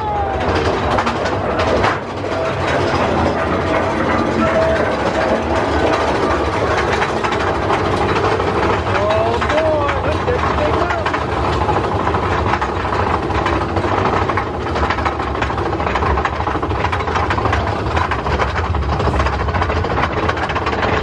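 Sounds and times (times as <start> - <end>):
lift chain clicking: 0.0 - 21.0
roller coaster train rumble: 0.0 - 21.0.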